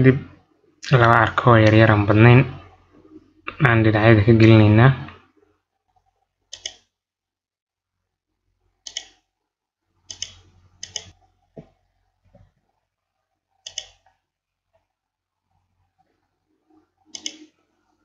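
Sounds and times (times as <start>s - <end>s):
computer mouse clicking: 5.9s - 6.9s, 8.8s - 9.2s, 10.1s - 11.2s, 13.6s - 14.1s, 17.0s - 17.6s.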